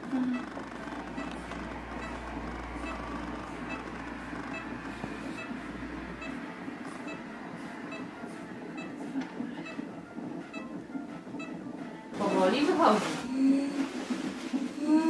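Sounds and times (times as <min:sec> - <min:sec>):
low hum: 0:00.0 - 0:11.7
whooshing fetal heartbeat: 0:00.0 - 0:15.0.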